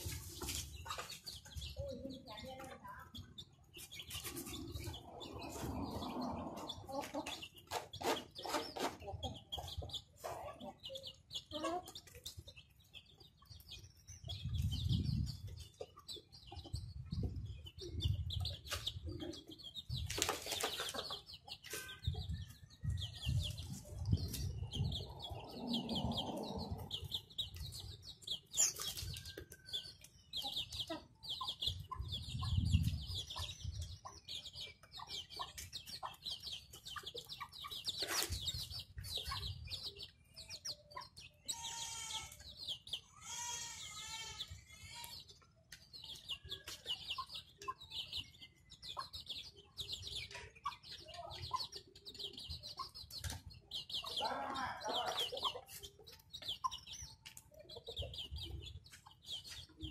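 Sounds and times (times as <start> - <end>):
chicks peeping rapidly: 0.0 - 59.9.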